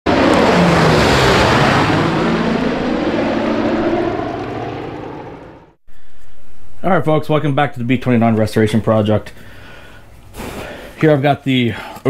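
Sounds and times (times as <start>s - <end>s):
propeller aircraft engines: 0.1s - 6.8s.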